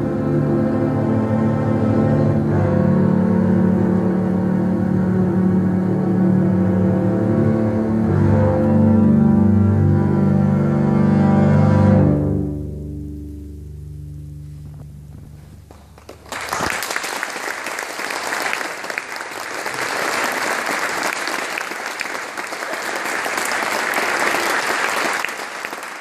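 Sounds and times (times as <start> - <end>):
double bass chord: 0.0 - 16.0
audience applause: 15.7 - 26.0.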